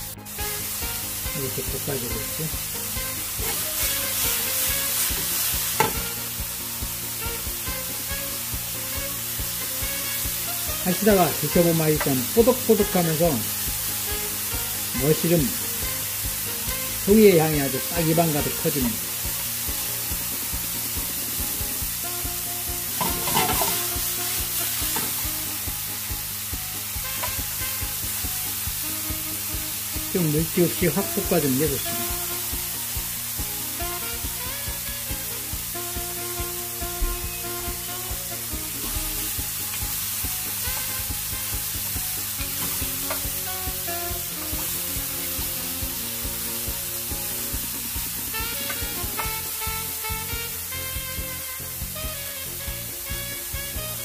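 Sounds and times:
background music: 0.0 - 54.0
mushrooms sizzling in a pan: 0.0 - 54.0
spoon knocking against pan: 5.8 - 6.1, 23.0 - 23.8
wooden spoon scraping a pan: 22.9 - 25.2.

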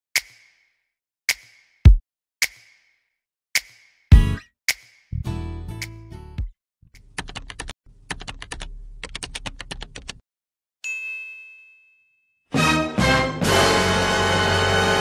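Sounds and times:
rapid key clicks: 7.0 - 10.2
bell-like ding: 10.8 - 12.5.

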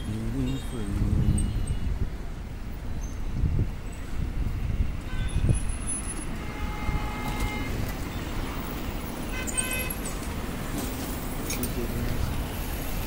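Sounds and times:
traffic rumble: 0.0 - 13.0
short horn beep: 6.4 - 7.8.

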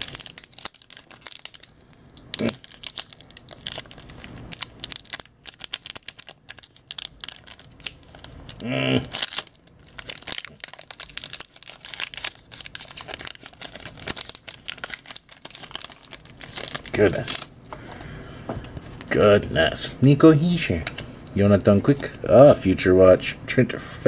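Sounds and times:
foil wrapper crinkling: 0.0 - 17.5.

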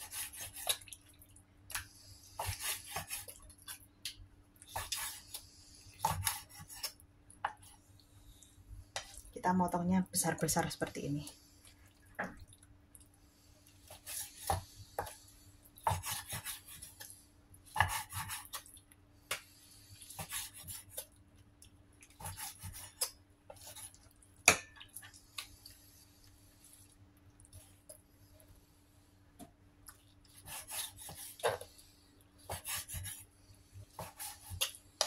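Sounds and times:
knife scraping: 2.4 - 3.8, 4.7 - 5.4, 6.0 - 7.0, 15.8 - 17.0, 22.2 - 24.0, 30.3 - 31.7, 32.5 - 33.3, 33.9 - 34.8.

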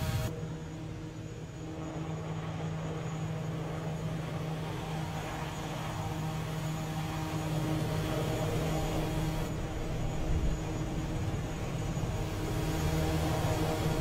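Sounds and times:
rushing jet noise: 0.0 - 0.3
low aircraft-like hum: 0.0 - 14.0.

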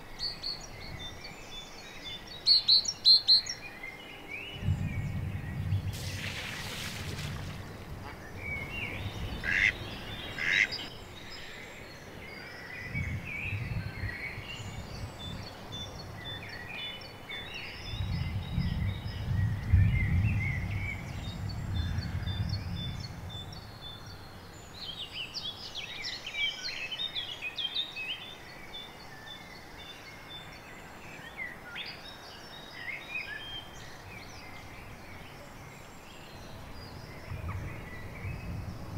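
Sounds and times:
low rumble: 4.6 - 10.2
birds chirping and calling: 5.6 - 11.7.

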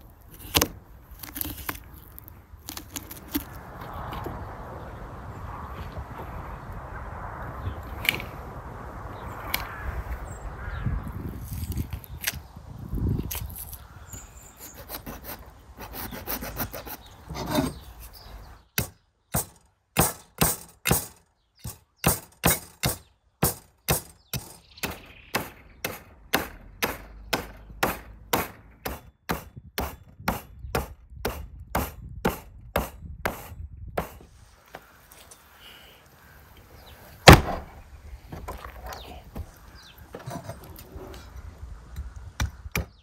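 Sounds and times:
cleaver scraping bone: 0.3 - 3.6.

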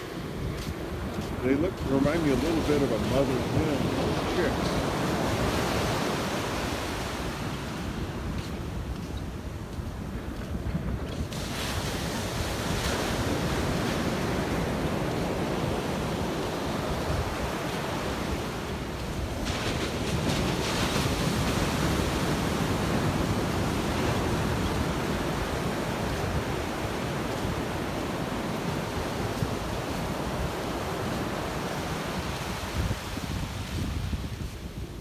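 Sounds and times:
waves breaking on beach: 0.0 - 35.0
wind rumble on microphone: 0.0 - 35.0.

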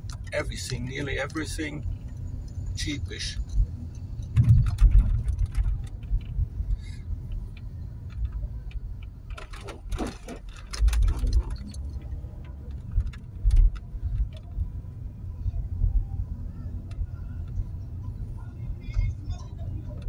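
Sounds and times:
car road and engine rumble: 0.0 - 20.0
small clicks and rattles: 3.4 - 14.8.

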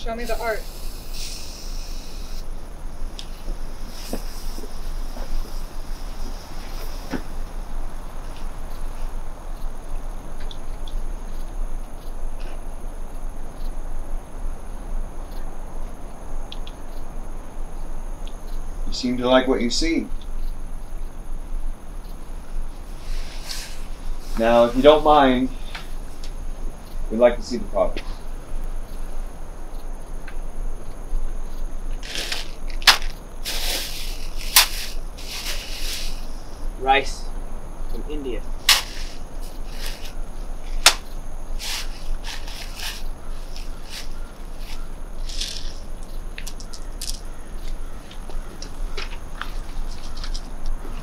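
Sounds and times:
high insect-like drone: 0.0 - 51.0
faint ticks: 8.3 - 13.8, 14.9 - 17.1, 17.7 - 18.7, 20.1 - 24.5, 25.6 - 27.1, 27.8 - 36.3
bags and packaging rustling: 32.0 - 36.3, 38.6 - 46.9
sharp clicks: 40.8 - 47.3.

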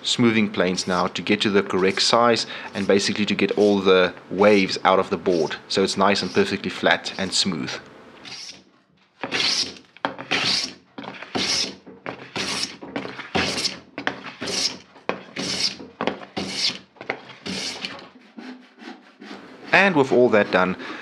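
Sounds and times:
hand plane swishing strokes on wood: 0.8 - 3.8, 6.1 - 6.6, 8.2 - 8.6, 9.2 - 21.0.

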